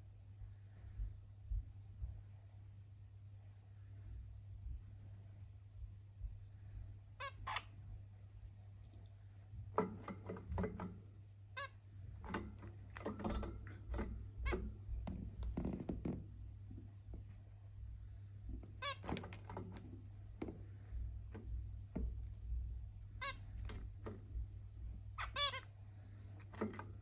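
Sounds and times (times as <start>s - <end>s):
steady low hum: 0.0s - 27.0s
finch calls: 7.2s - 7.8s, 25.1s - 25.7s.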